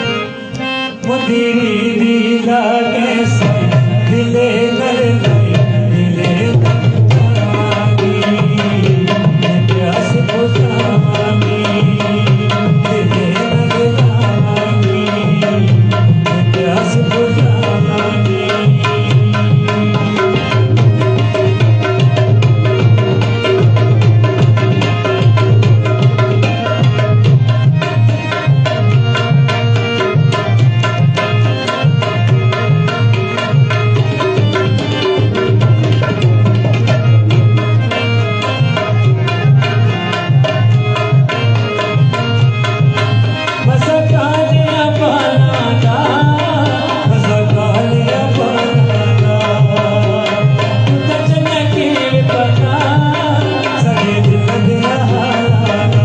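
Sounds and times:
tabla playing: 0.0 - 56.0
man singing: 0.9 - 21.6, 43.4 - 56.0.

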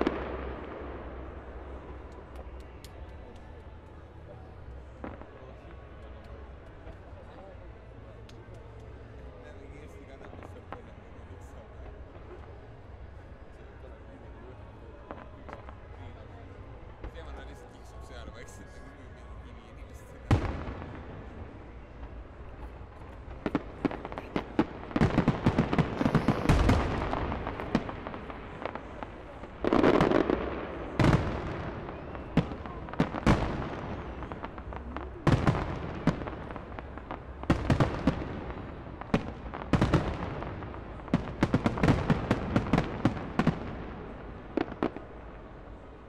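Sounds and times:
fireworks bursting with sharp bangs: 0.0 - 3.7, 20.3 - 46.0.

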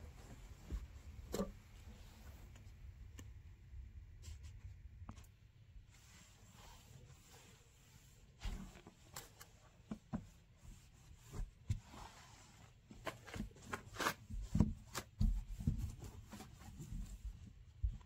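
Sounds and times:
light knocks and dull bumps: 0.0 - 1.8, 14.3 - 18.0.

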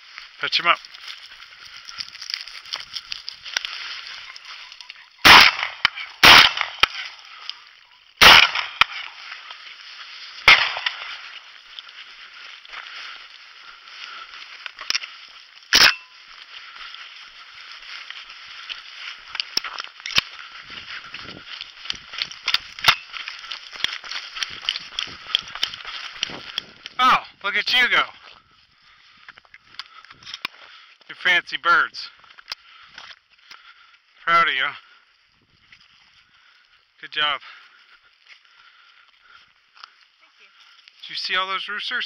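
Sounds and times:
shotgun shots: 5.2 - 7.0, 8.2 - 9.1, 10.4 - 11.2.

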